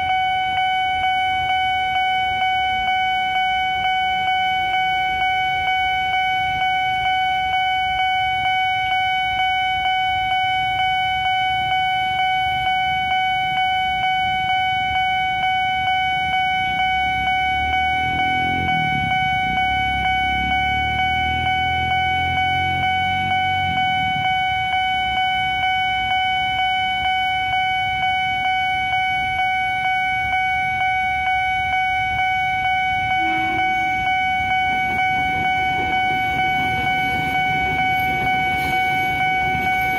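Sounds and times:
level crossing warning siren: 0.0 - 39.9
vehicle engine rumbling: 15.8 - 39.9.

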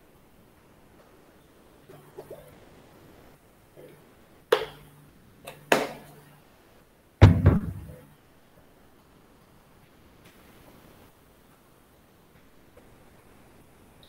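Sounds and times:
faint low hum: 0.0 - 14.0
sharp knocks: 7.2 - 8.0.

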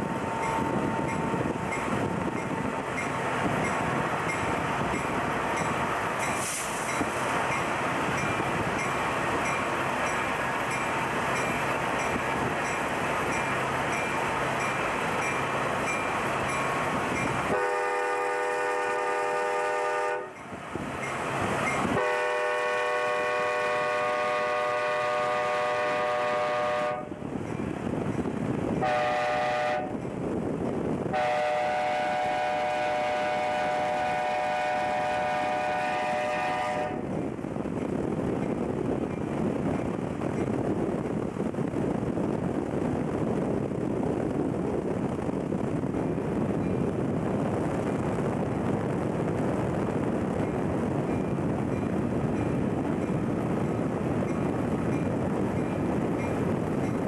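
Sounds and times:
train rumble: 0.0 - 57.0
wind noise: 0.0 - 57.0
locomotive air horn blasts: 17.5 - 20.4, 21.9 - 27.2, 28.8 - 30.0, 31.1 - 37.1.

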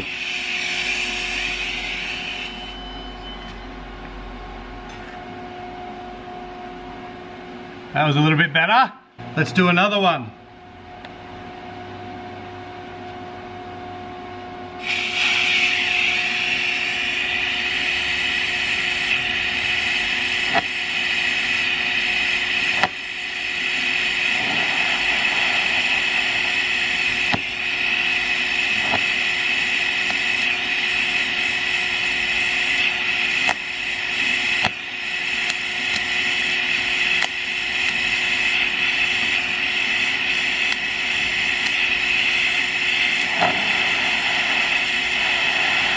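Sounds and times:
welding arc hissing buzz: 0.0 - 2.8, 14.8 - 45.9
steady hum: 0.0 - 45.9
welding arc crackles: 14.8 - 45.9.

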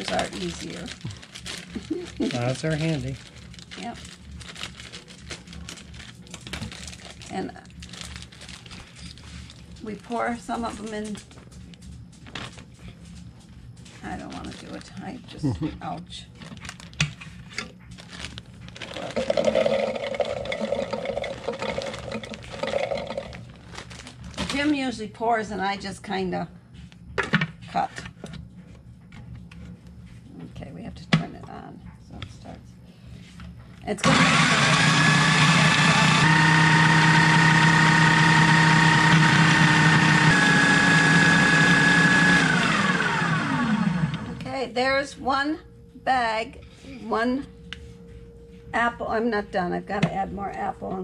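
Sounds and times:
food processor motor running: 0.0 - 3.9, 18.8 - 23.4, 34.0 - 44.4
berries rattling into container: 18.0 - 24.6
motor winding down whine: 34.0 - 44.5.

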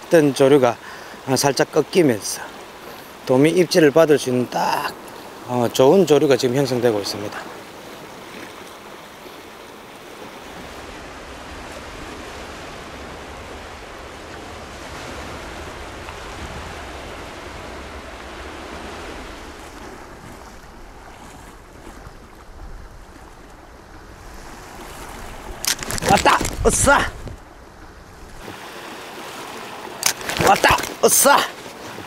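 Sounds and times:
sea water rushing past rocks: 0.0 - 32.0
wind rumbling on microphone: 10.2 - 28.6.

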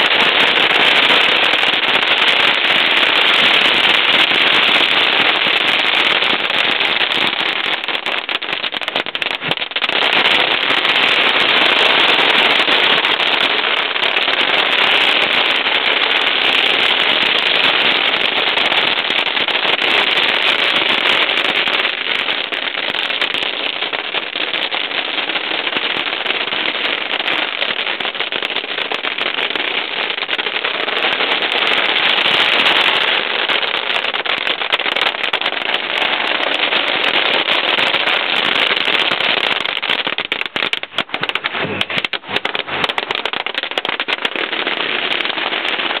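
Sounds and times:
firecrackers banging: 0.0 - 46.0.

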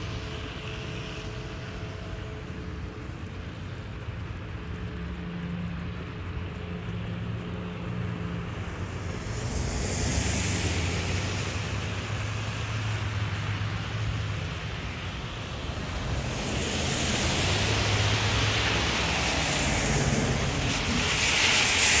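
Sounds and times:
low engine hum: 0.2 - 22.0
vehicle passing with rushing hiss: 7.0 - 22.0.

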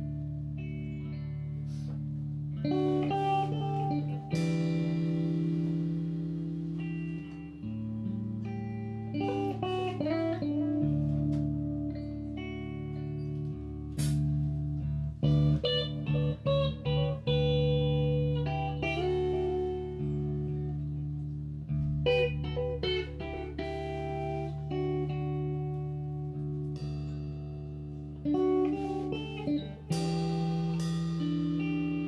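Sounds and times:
bass guitar held notes: 0.0 - 32.0
electric guitar melody: 0.0 - 32.0.

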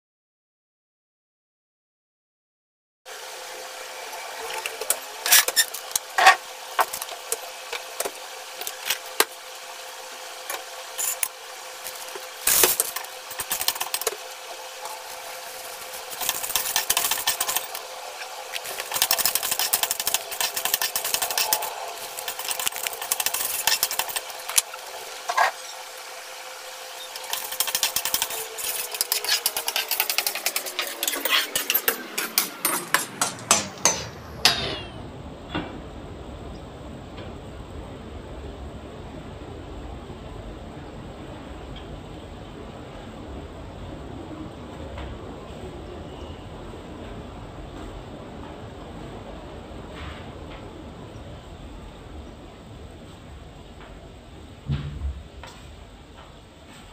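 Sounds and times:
steady hum: 3.1 - 56.9
metal spoon stirring popcorn kernels: 14.8 - 17.9, 18.5 - 24.8, 27.1 - 32.8
kernels rattling on metal: 15.6 - 17.9, 18.6 - 24.7.

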